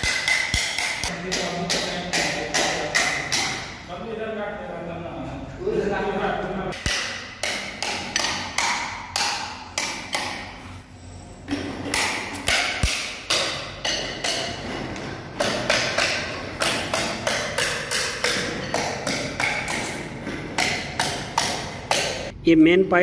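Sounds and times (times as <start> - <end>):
hammer blows ringing: 0.0 - 3.9.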